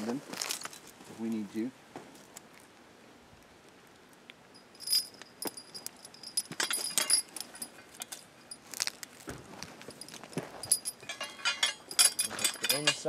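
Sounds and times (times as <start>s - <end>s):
metal chains clinking and jingling: 4.6s - 8.9s, 9.9s - 13.0s.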